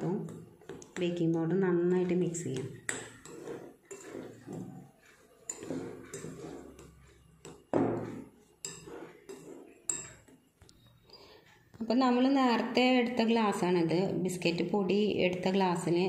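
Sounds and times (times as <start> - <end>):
spoon scraping powder in bowl: 0.0 - 11.8
spoon clinking against bowl: 5.4 - 10.5.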